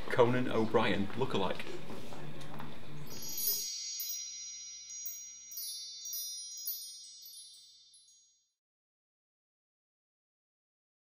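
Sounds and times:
shimmering chime: 3.1s - 8.6s.

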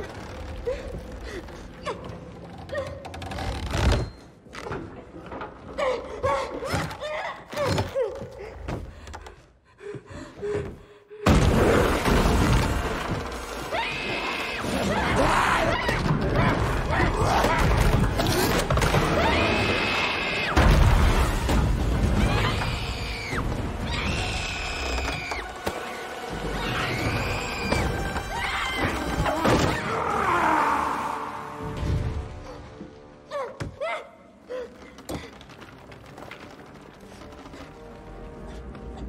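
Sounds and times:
loud dense horror music: 12.5s - 33.4s.

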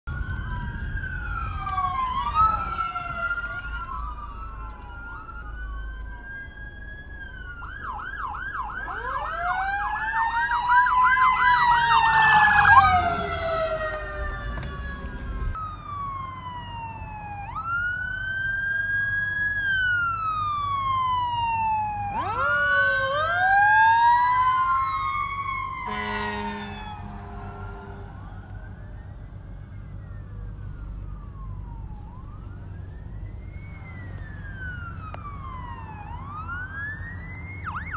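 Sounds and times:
passing traffic rumble: 0.1s - 37.9s
electronic siren wailing: 0.2s - 18.0s, 19.7s - 37.9s
vehicle horn blast: 25.8s - 28.2s.

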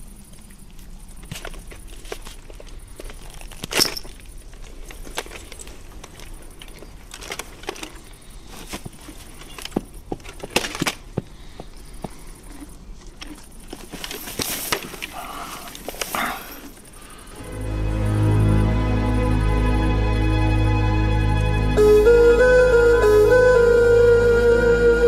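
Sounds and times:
quiet film soundtrack: 14.8s - 25.0s.

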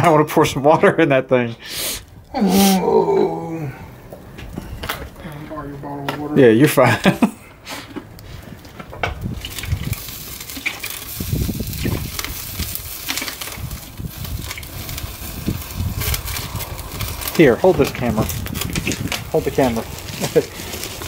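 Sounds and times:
water sizzling on hot metal: 9.2s - 21.0s.

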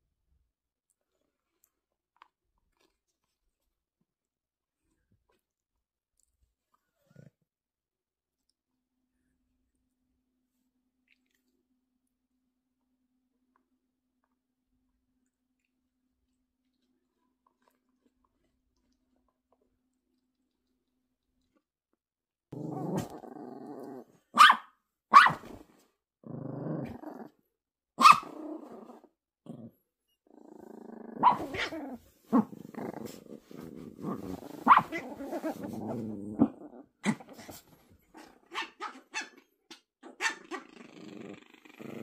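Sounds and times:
dogs growling: 22.5s - 24.2s, 26.2s - 27.4s, 28.3s - 38.5s, 40.2s - 42.0s
dog barking: 24.3s - 25.5s, 28.0s - 28.3s, 31.2s - 31.8s, 34.6s - 35.0s
dog yapping: 24.4s - 25.5s, 28.0s - 28.3s, 31.2s - 31.8s, 34.6s - 35.0s.

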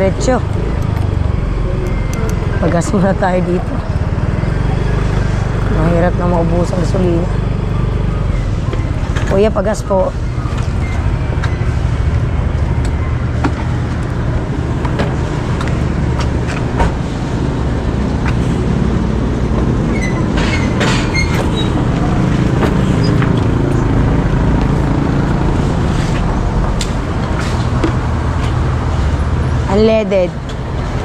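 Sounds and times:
vehicle engine rumbling: 0.0s - 31.0s.

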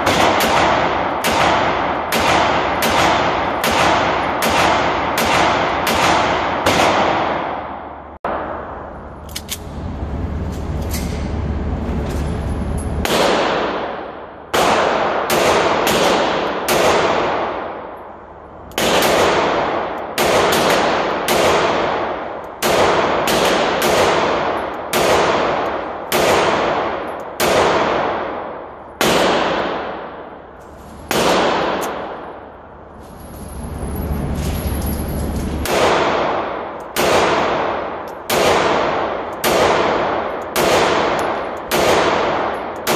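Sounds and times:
pistol shots indoors: 0.0s - 33.1s, 33.8s - 42.9s
low rumble: 8.3s - 13.2s, 30.1s - 36.8s.

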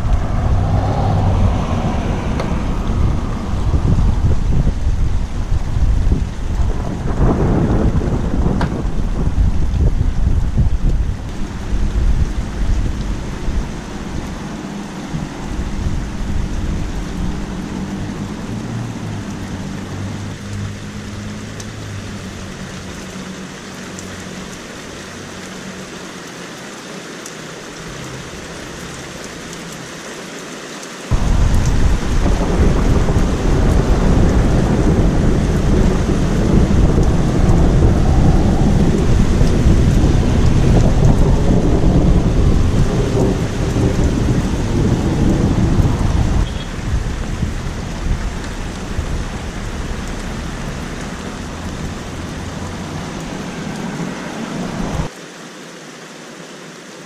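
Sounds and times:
deep rumble of thunder: 0.0s - 21.5s, 31.1s - 55.1s
steady rain: 0.0s - 57.0s.

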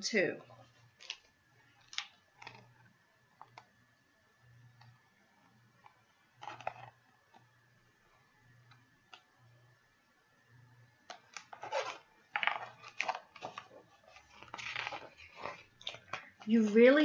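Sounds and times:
paper rustling: 11.3s - 17.0s.

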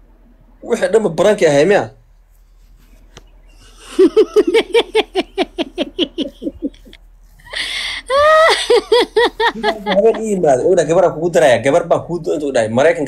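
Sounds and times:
person laughing hard: 3.7s - 10.4s
hissing breath: 7.4s - 8.2s.

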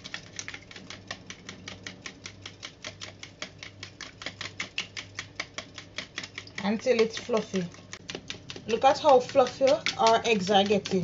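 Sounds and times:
whisk beating eggs in a bowl: 0.0s - 11.0s.

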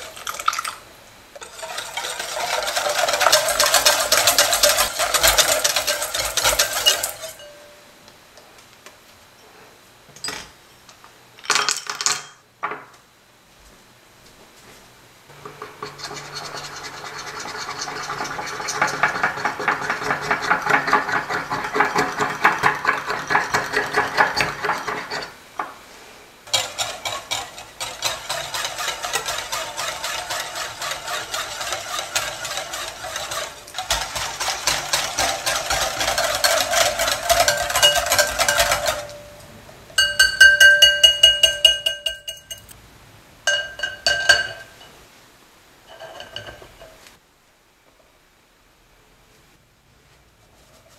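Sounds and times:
whisk beating in glass bowl: 1.4s - 7.5s, 15.4s - 25.3s, 26.5s - 39.3s, 40.0s - 42.7s
metal clinking on glass: 5.6s - 7.8s, 36.4s - 39.4s, 40.0s - 42.8s, 43.5s - 44.9s.

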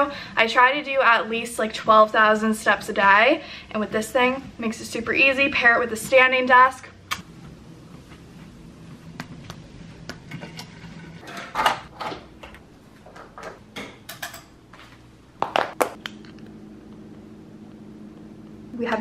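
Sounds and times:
faint steady hum: 12.0s - 19.0s.

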